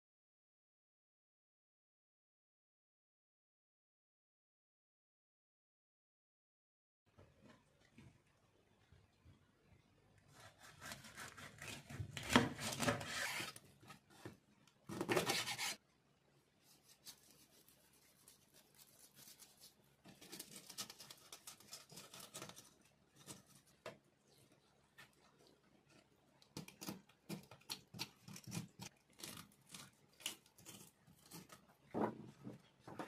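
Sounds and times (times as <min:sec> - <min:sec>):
knife scraping fish on cutting board: 0:15.0 - 0:15.8.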